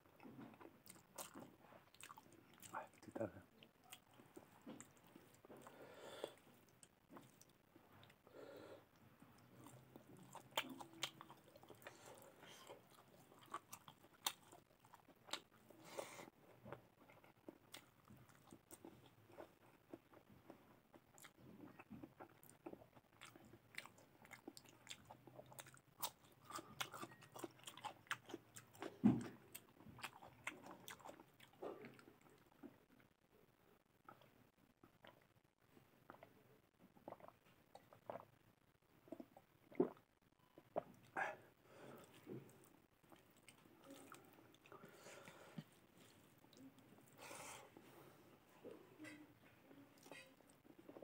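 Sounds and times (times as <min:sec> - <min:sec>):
person chewing food: 0:00.1 - 0:48.8, 0:50.0 - 0:51.0
thump: 0:29.0 - 0:29.3.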